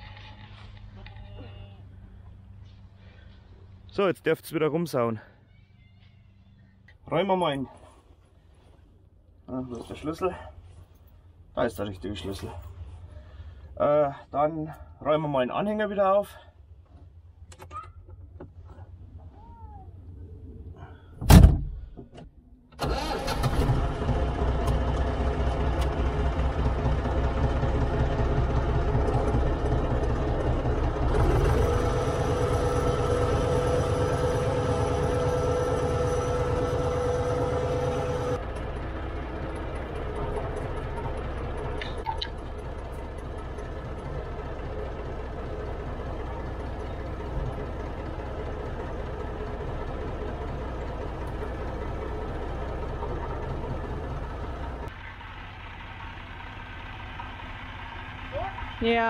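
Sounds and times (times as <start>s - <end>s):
tractor diesel engine: 0.0s - 21.4s, 22.7s - 59.0s.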